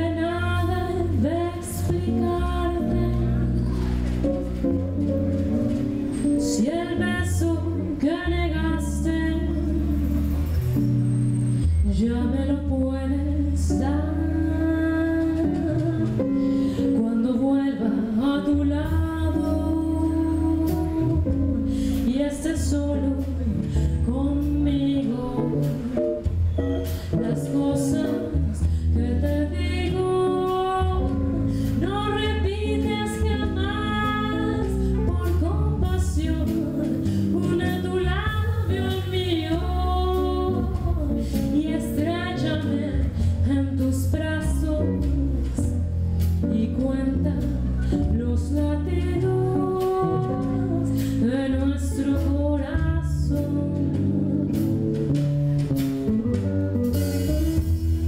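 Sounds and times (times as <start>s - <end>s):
woman singing: 0.0s - 10.4s, 11.8s - 55.3s
electric bass: 0.0s - 58.0s
drum kit: 0.4s - 17.0s, 18.4s - 58.0s
electric guitar: 12.0s - 58.0s.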